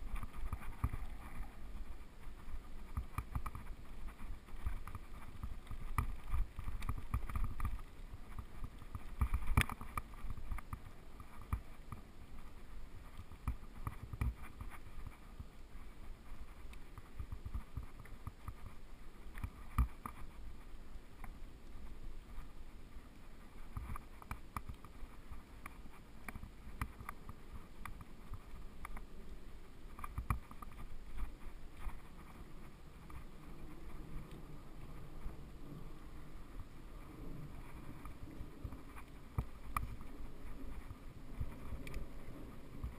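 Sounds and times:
bike rattling over bumps: 0.0 - 20.5
bike tyres rumbling on gravel: 0.0 - 42.9.

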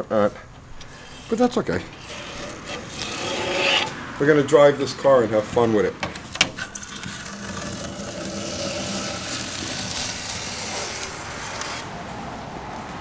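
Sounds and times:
masking tape being peeled: 6.6 - 11.9.

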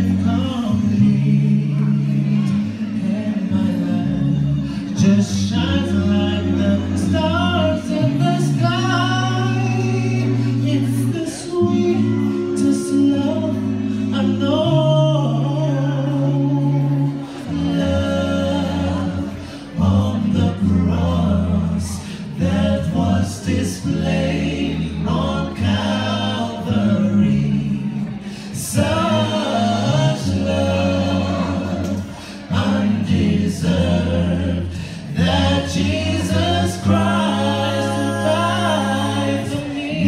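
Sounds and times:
male a cappella group singing: 0.0 - 40.0.

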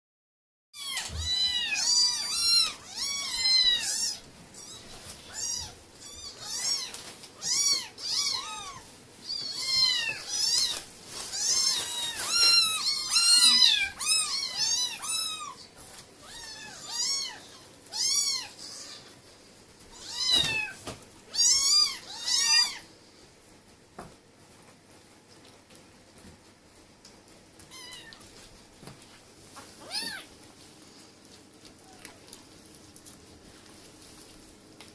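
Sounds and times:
kittens mewing: 0.8 - 19.2, 19.9 - 22.9, 29.8 - 30.4.

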